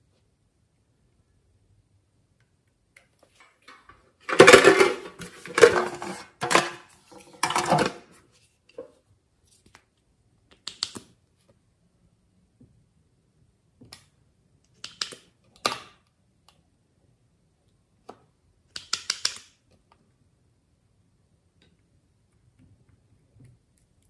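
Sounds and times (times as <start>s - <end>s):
plastic box clattering: 3.7s - 8.1s.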